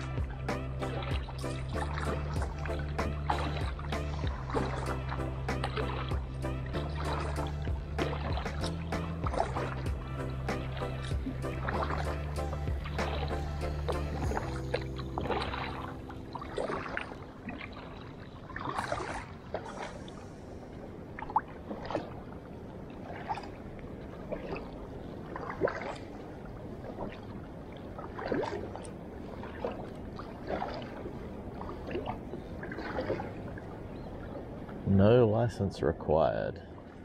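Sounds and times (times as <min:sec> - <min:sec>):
background music: 0:00.0 - 0:18.4
kayak paddle splashing in water: 0:00.0 - 0:20.4, 0:21.1 - 0:34.8.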